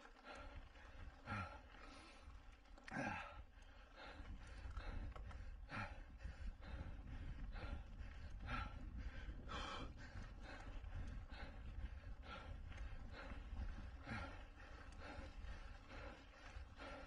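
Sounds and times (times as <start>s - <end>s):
heavy gasping breaths: 0.0s - 17.0s
steady low rumble: 3.6s - 17.0s.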